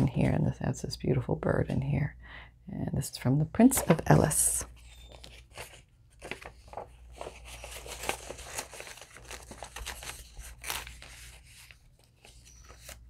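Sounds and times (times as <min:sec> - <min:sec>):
paper pages rustling: 0:03.7 - 0:13.0.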